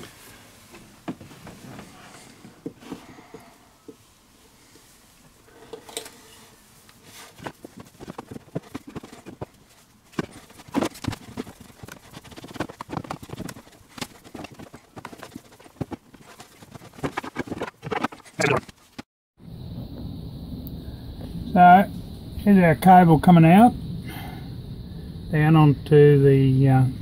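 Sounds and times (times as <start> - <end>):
cable knocking and rubbing on floor: 7.2 - 18.8.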